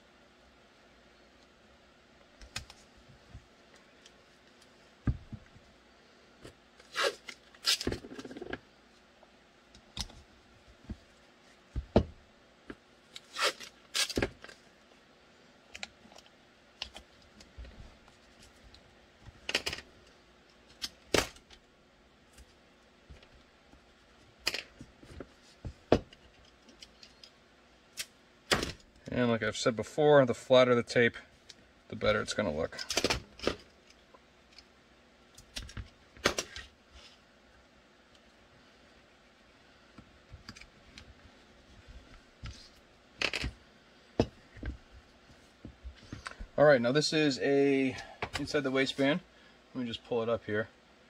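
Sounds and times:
tape ripping: 6.8s - 8.0s, 13.2s - 14.3s.

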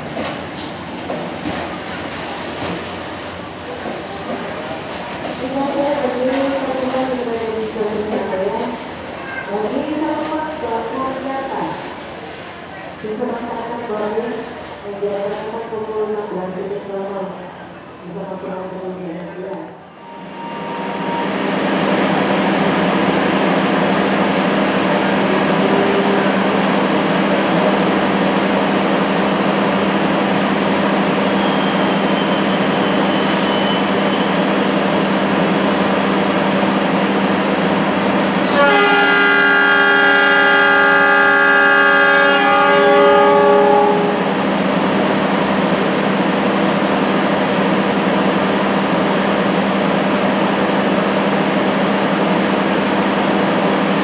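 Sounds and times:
train horn blast: 38.4s - 44.4s.

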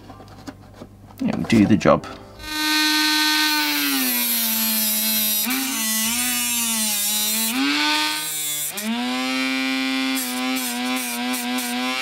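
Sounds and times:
rotary tool whining: 2.4s - 12.0s.

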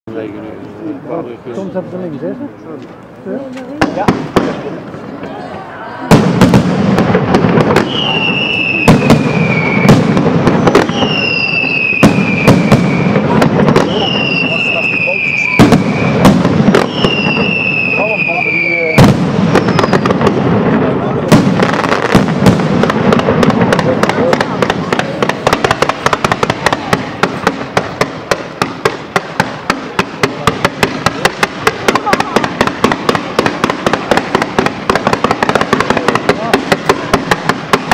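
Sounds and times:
fireworks bangs: 3.5s - 37.9s
falling firework whistle: 7.7s - 20.2s.

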